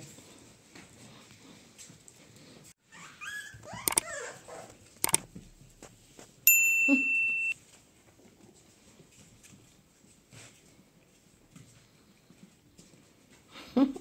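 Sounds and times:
puppy yelping: 0:02.9 - 0:04.8
sharp clicks: 0:05.0 - 0:05.3
electronic bell ding: 0:06.5 - 0:07.6.

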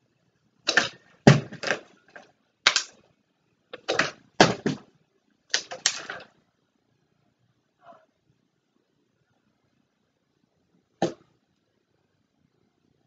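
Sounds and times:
plastic bottle hitting carpet: 0:00.7 - 0:01.9, 0:03.8 - 0:04.9, 0:11.0 - 0:11.3.

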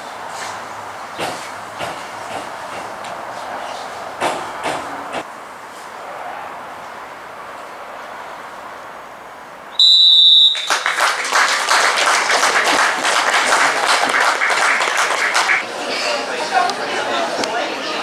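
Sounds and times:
referee's whistle blast: 0:09.8 - 0:10.9
crowd applause: 0:10.2 - 0:16.2.

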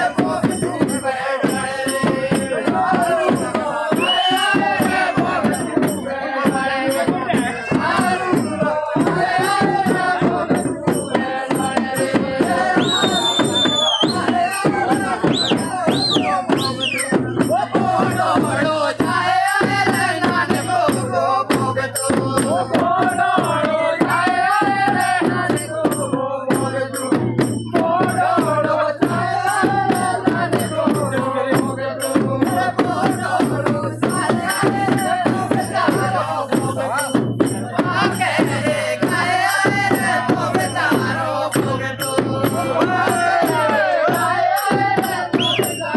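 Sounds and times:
drums beaten in steady rhythm: 0:00.0 - 0:45.9
group of men singing: 0:00.0 - 0:45.9
short high whistles: 0:04.0 - 0:04.7, 0:12.8 - 0:14.6, 0:15.3 - 0:17.2, 0:45.4 - 0:45.9.

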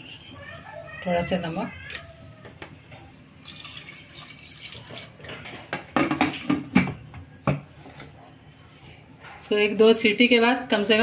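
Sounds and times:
water pouring into metal pot: 0:03.4 - 0:05.2.

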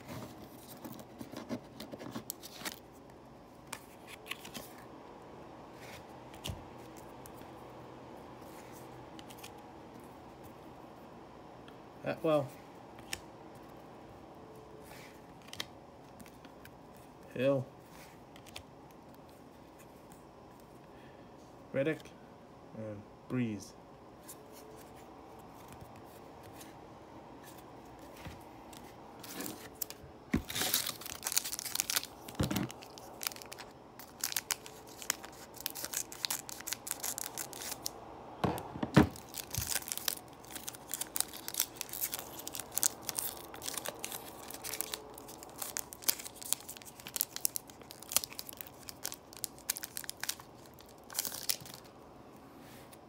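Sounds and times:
cards being handled: 0:00.0 - 0:04.8, 0:08.4 - 0:09.6, 0:14.8 - 0:20.7, 0:27.4 - 0:51.9
foil wrapper crinkling and tearing: 0:29.2 - 0:37.9, 0:39.1 - 0:51.9.

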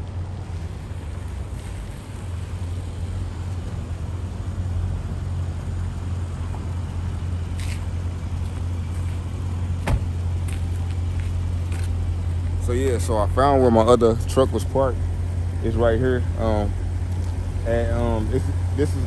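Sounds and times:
car engine low rumble: 0:00.0 - 0:19.0.

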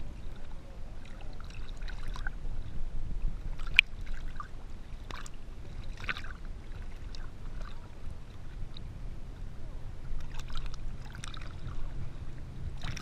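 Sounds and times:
steady low rumble: 0:00.0 - 0:13.0
water lapping and splashing: 0:00.0 - 0:13.0
sharp splash: 0:03.6 - 0:07.9, 0:10.2 - 0:11.9, 0:12.8 - 0:13.0.

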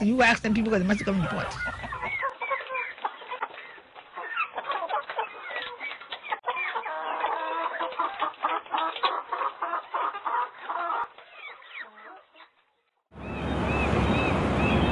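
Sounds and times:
flock of birds calling: 0:00.2 - 0:12.5, 0:13.2 - 0:14.9.

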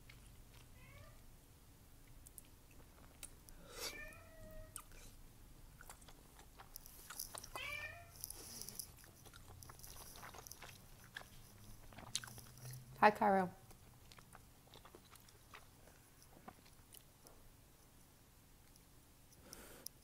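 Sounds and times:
wet chewing and mouth clicks: 0:00.0 - 0:00.8, 0:02.0 - 0:03.6, 0:04.7 - 0:13.0, 0:13.6 - 0:20.0
cat meowing: 0:00.8 - 0:01.2, 0:03.9 - 0:04.8, 0:07.6 - 0:08.2.

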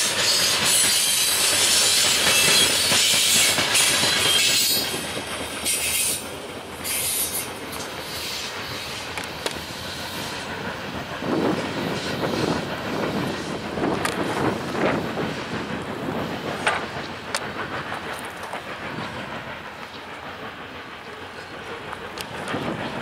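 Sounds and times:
train clickety-clack on rails: 0:00.0 - 0:23.0
train wheels squealing: 0:00.0 - 0:23.0.

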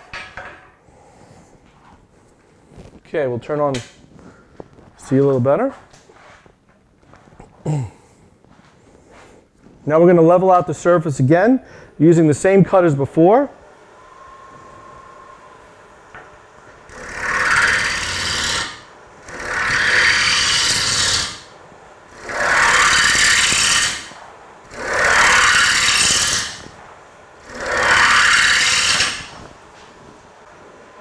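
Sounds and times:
lathe running quietly: 0:13.5 - 0:31.0
wood gouge rasping on lathe: 0:16.9 - 0:21.5, 0:22.1 - 0:26.8, 0:27.4 - 0:29.4.

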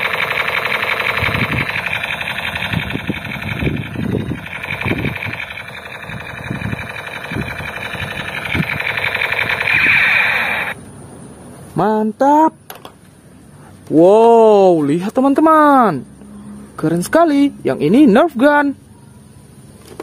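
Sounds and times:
toy gun buzzing rapid-fire effect: 0:00.0 - 0:10.8.

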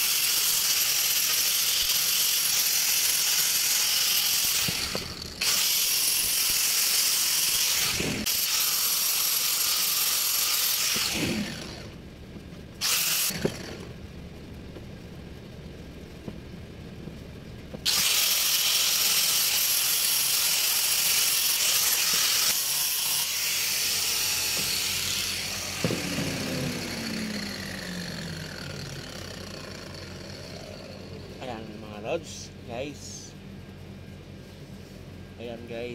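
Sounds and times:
angle grinder whirring: 0:00.0 - 0:12.0, 0:12.8 - 0:14.0, 0:17.8 - 0:31.5.

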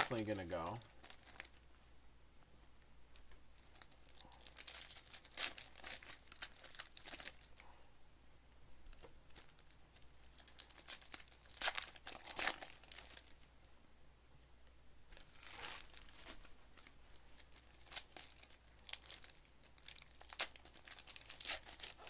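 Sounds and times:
foil wrappers crinkling and tearing: 0:00.0 - 0:01.7, 0:03.6 - 0:07.6, 0:08.9 - 0:13.5, 0:15.2 - 0:22.0.

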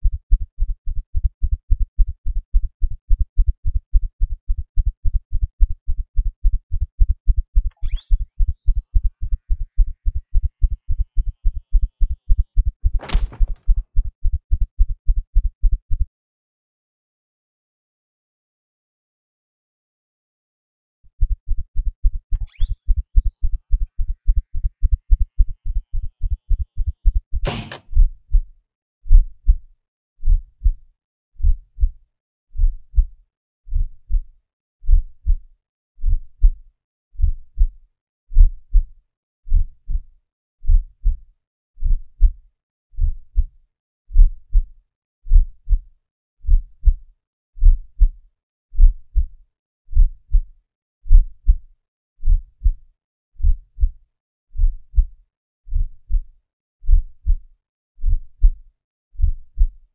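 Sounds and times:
heartbeat: 0:00.0 - 0:08.1, 0:08.7 - 0:16.1, 0:21.2 - 0:28.4, 0:29.1 - 0:29.6, 0:30.2 - 0:30.8, 0:31.4 - 0:32.0, 0:32.6 - 0:33.1, 0:33.7 - 0:36.6, 0:37.2 - 0:38.9, 0:39.5 - 0:41.2, 0:41.8 - 0:42.4, 0:43.0 - 0:43.5, 0:44.1 - 0:44.7, 0:45.3 - 0:45.8, 0:46.4 - 0:47.0, 0:47.6 - 0:48.2, 0:48.8 - 0:49.3, 0:49.9 - 0:50.5, 0:51.1 - 0:51.6, 0:52.2 - 0:52.8, 0:53.4 - 0:54.0, 0:54.6 - 0:57.4, 0:58.0 - 0:58.6, 0:59.2 - 0:59.8
defibrillator charging whine: 0:07.7 - 0:12.6, 0:22.4 - 0:27.8.

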